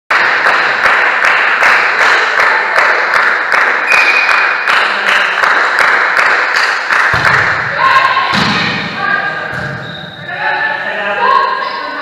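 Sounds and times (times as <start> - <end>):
rhythmic clapping: 0.1 - 8.6
crowd noise: 0.2 - 12.0
short high whistle: 3.9 - 4.4.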